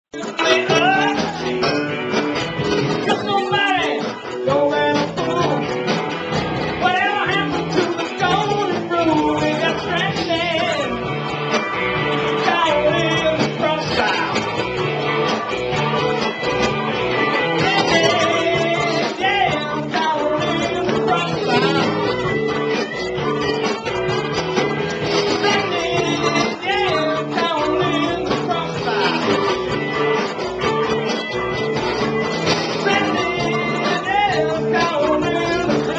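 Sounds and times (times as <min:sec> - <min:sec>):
bass guitar: 0:00.1 - 0:35.9
drums: 0:00.1 - 0:35.9
electric guitar: 0:00.1 - 0:35.9
person singing: 0:00.2 - 0:02.1, 0:02.9 - 0:05.9, 0:06.6 - 0:35.9.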